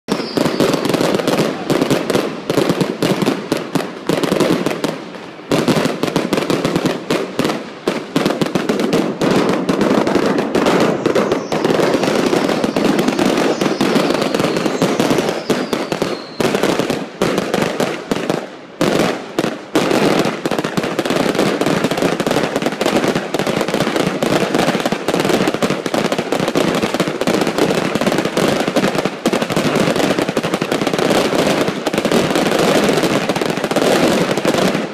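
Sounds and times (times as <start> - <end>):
faint falling whistle: 0.1 - 1.2, 10.8 - 16.8
fireworks bangs and crackling: 0.1 - 34.9.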